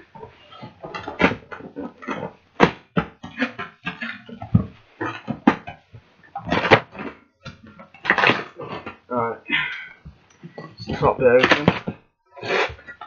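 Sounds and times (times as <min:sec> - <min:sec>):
cardboard and packing tape ripping: 0:08.0 - 0:09.0.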